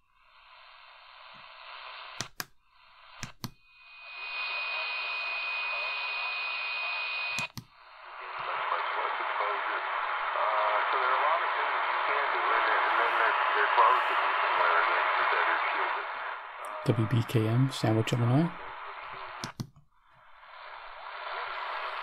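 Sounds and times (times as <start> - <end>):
radio static hiss: 0.0 - 22.0
high radio whistle: 3.7 - 7.5, 8.2 - 19.4.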